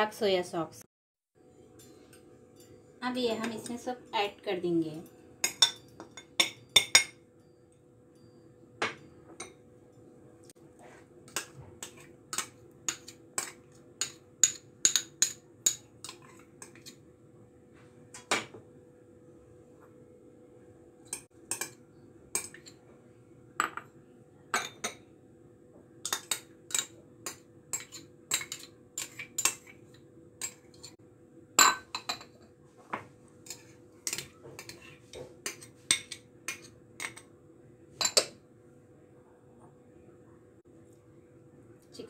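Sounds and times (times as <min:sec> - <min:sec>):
metal spoon clinking on glass: 0:05.0 - 0:09.7.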